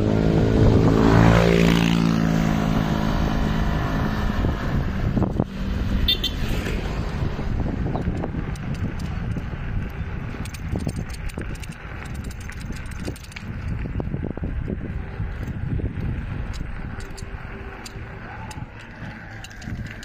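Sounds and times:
vehicle engine passing by: 0.0s - 10.5s
wind rushing over microphone: 0.0s - 20.0s.

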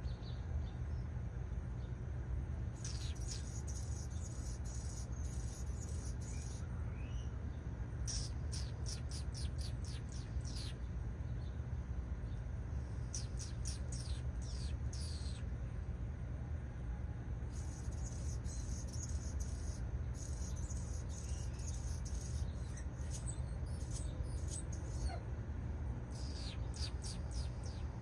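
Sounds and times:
steady low rumble: 0.0s - 28.0s
songbird calling high notes: 26.1s - 28.0s.

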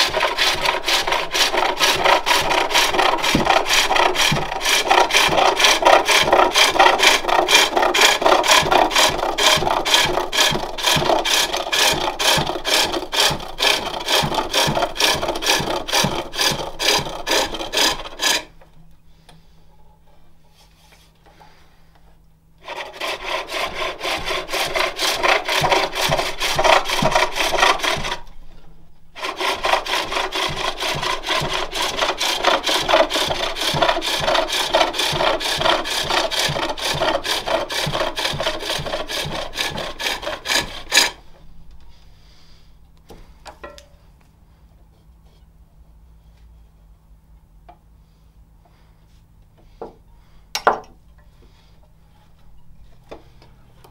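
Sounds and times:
lathe tool scraping wood: 0.0s - 18.6s, 22.6s - 28.4s, 29.2s - 41.4s.

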